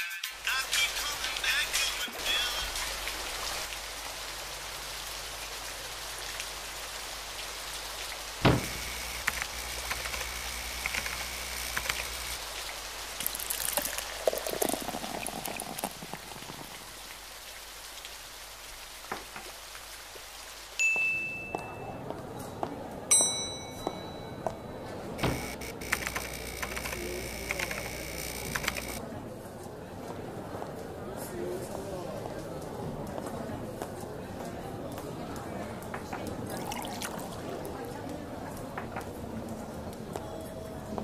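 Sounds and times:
hiss of falling water: 1.1s - 20.8s
sharp knock: 8.4s - 8.8s.

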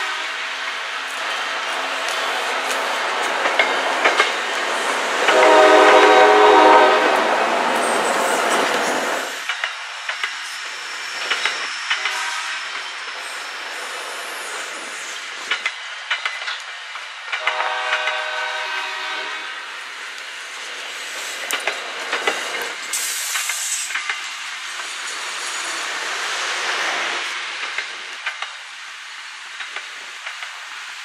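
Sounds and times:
train wheels on rails: 0.0s - 31.0s
wheels clacking over rail joints: 0.6s - 18.6s, 20.2s - 26.0s, 27.0s - 28.7s
brief hiss: 22.4s - 27.4s.

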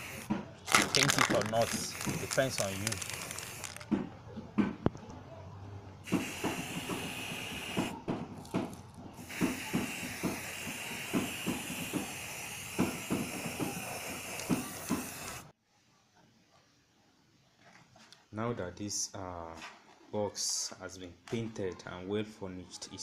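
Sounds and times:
spray-paint can hissing: 0.0s - 3.8s, 6.1s - 8.0s, 9.2s - 15.5s.

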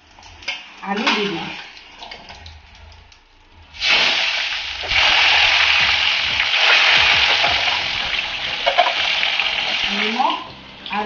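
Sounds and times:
potatoes sizzling in hot oil: 3.8s - 10.6s.

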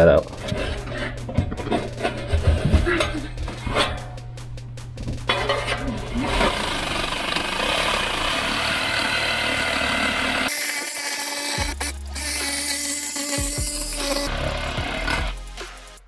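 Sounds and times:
electronic music with bass: 0.0s - 8.4s, 11.6s - 16.0s
jigsaw sawing through drywall: 6.3s - 15.4s.

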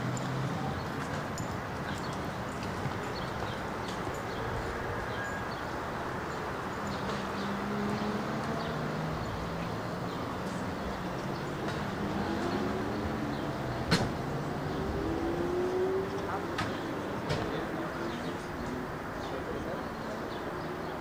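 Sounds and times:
traffic noise: 0.0s - 21.0s
vehicle engine hum: 0.0s - 21.0s.

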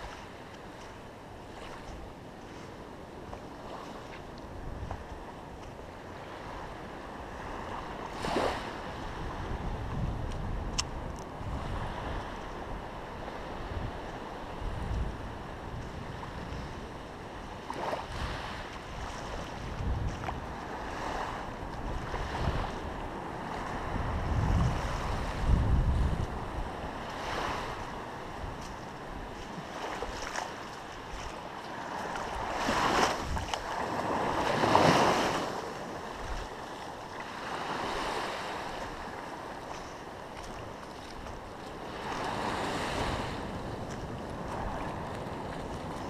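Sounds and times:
wind rumble on microphone: 0.0s - 46.0s
ocean surf washing in: 11.4s - 46.0s.

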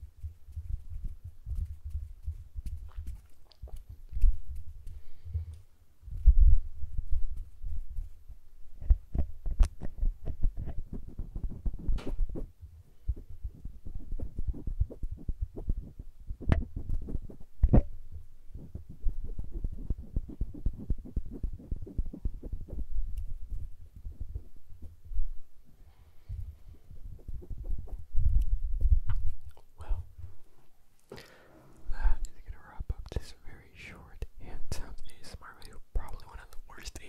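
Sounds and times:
fingertips rubbing microphone: 6.1s - 25.5s, 26.4s - 29.4s.

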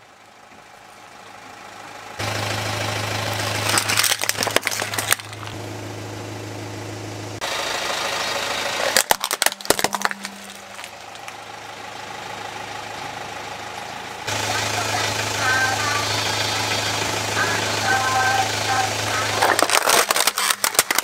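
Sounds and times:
car engine running: 0.0s - 21.0s
plastic toys cracking and snapping: 3.6s - 5.6s, 8.8s - 11.4s, 19.4s - 21.0s.

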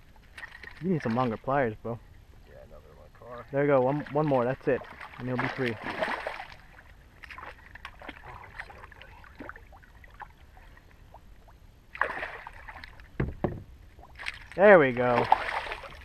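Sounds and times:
shallow water lapping: 0.0s - 16.0s
fish thrashing in water: 3.9s - 10.4s, 12.0s - 13.1s, 14.0s - 16.0s
low thump: 13.2s - 13.7s.

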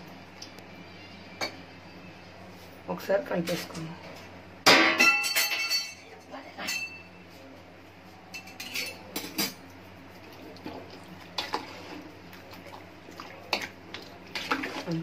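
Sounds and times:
spoon stirring in pot: 8.4s - 15.0s.

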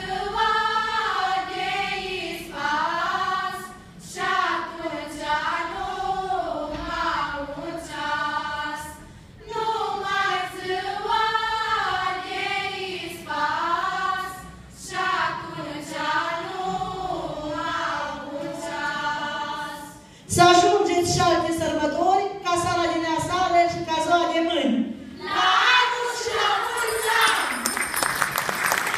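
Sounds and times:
choir singing unaccompanied: 0.0s - 20.0s, 25.1s - 27.6s.

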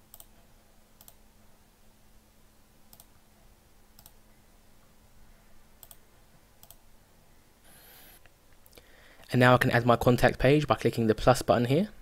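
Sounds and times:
low steady hum: 0.0s - 12.0s
computer mouse clicks: 0.1s - 0.4s, 1.0s - 1.2s, 2.9s - 3.2s, 4.0s - 4.2s, 5.8s - 6.0s, 6.6s - 6.8s.

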